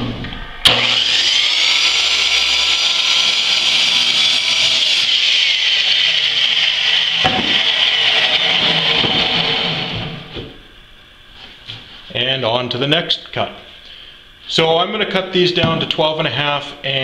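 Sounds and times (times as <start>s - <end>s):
miter saw cutting plywood: 0.7s - 10.5s.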